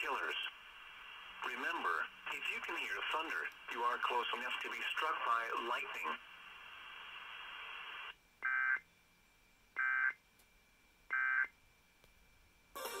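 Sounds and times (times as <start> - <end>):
steady hiss: 0.0 - 8.2.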